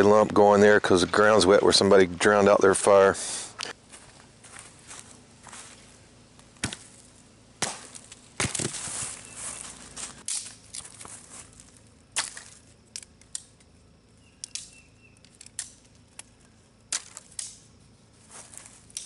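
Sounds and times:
dry sticks snapping: 6.4s - 7.0s, 7.6s - 8.8s, 10.0s - 17.7s, 18.5s - 19.0s.

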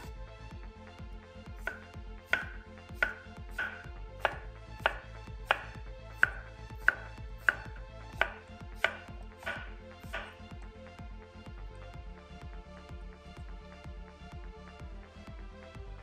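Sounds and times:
knife chopping on wooden board: 1.6s - 10.4s.

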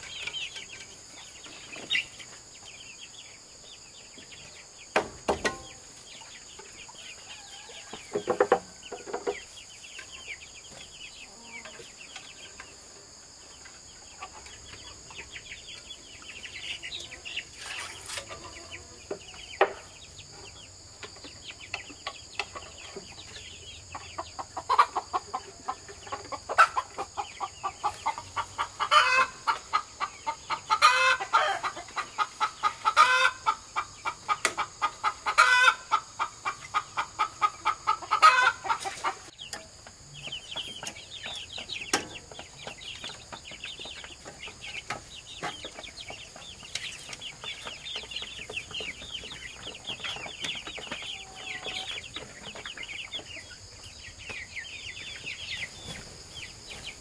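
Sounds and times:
chicken clucking: 0.0s - 57.0s
hen cackling: 24.0s - 39.3s.

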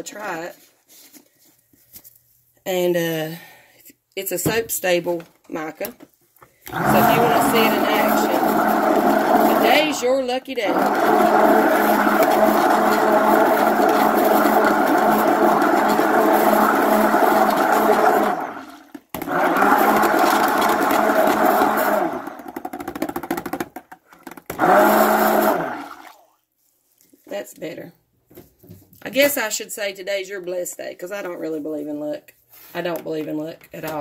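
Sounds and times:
stick blender running: 6.6s - 26.2s.

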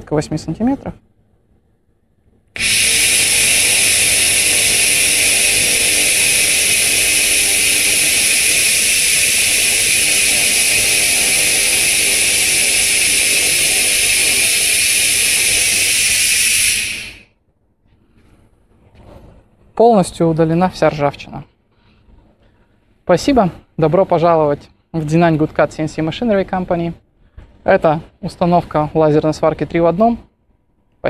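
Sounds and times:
laser cleaner high-pitched hiss: 2.6s - 17.3s.

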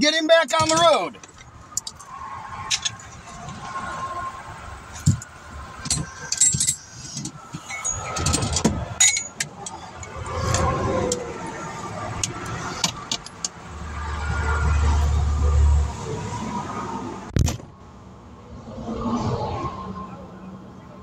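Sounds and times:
highway traffic rushing: 0.0s - 21.0s
sharp clicks and jangling rattles: 0.6s - 2.1s, 4.9s - 11.3s, 12.2s - 13.6s.

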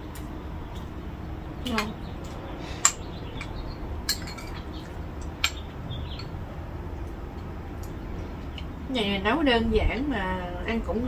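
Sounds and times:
low background hum: 0.0s - 11.0s
metal spoon clinking on bowl: 4.1s - 4.6s.

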